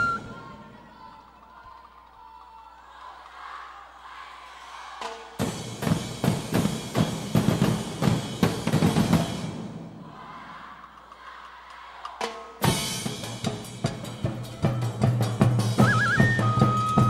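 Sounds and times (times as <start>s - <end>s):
heavy drum strikes: 5.4s - 10.0s.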